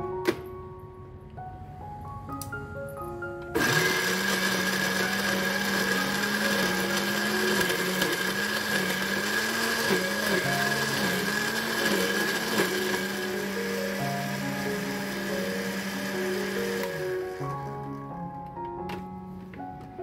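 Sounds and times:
blender grinding: 3.6 - 18.0.

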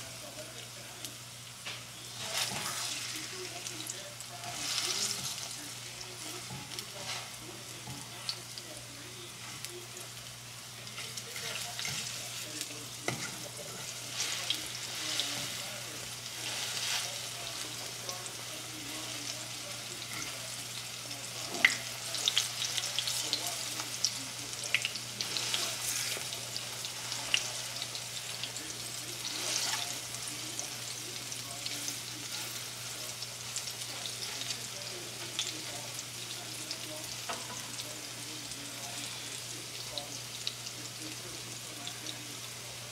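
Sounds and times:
food sizzling in frying pan: 0.0 - 42.9
fork scraping a pan: 2.2 - 3.3, 4.4 - 5.6, 6.2 - 8.4, 10.9 - 17.7, 20.0 - 20.5, 25.2 - 27.7, 29.2 - 30.4.

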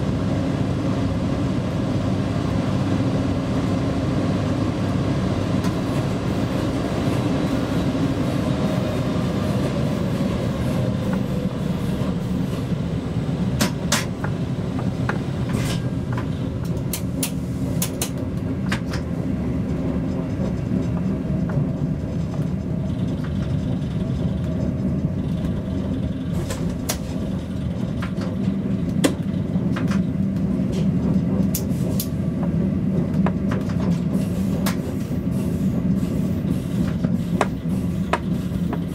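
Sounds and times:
electric locomotive rumble and hum: 0.0 - 38.9
wheels clicking on track: 8.1 - 38.9.

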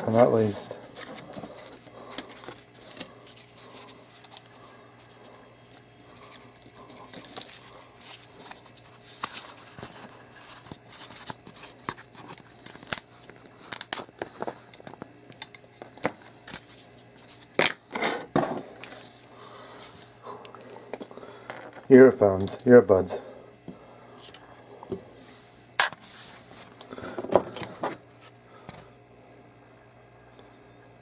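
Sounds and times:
packaging crinkling: 5.2 - 15.0.

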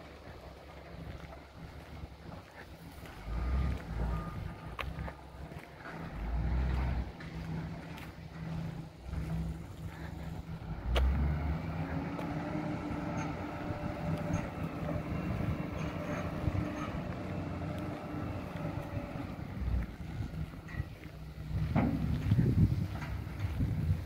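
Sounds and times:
diesel engine revving: 0.0 - 24.0
wind buffeting microphone: 6.7 - 24.0.

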